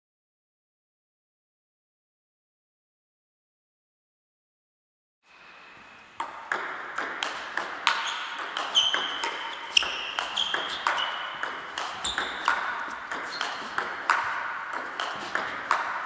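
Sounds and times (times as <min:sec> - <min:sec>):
table tennis ball clicking: 0:06.2 - 0:16.0.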